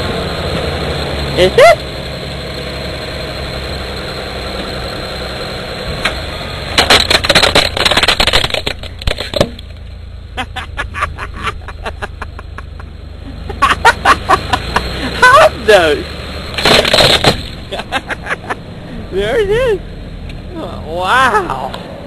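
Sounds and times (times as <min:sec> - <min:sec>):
car engine running: 0:00.0 - 0:22.0
plastic toy cracking under tyre: 0:06.8 - 0:09.8, 0:16.6 - 0:17.6.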